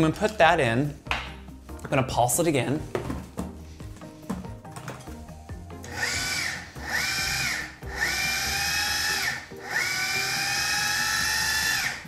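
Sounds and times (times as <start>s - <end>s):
food processor motor whine: 5.8s - 12.0s.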